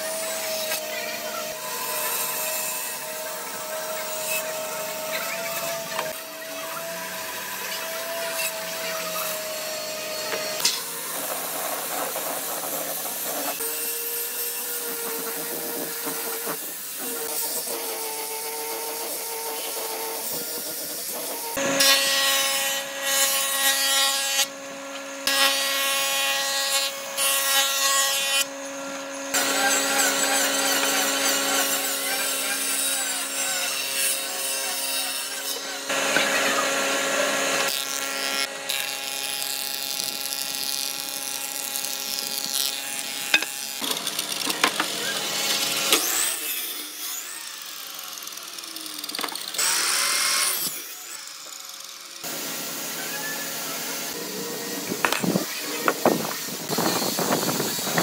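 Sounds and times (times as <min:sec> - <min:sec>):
sanding drum grinding wood: 0:00.0 - 0:21.7, 0:52.2 - 0:58.0
woodworking machines running: 0:00.0 - 0:58.0.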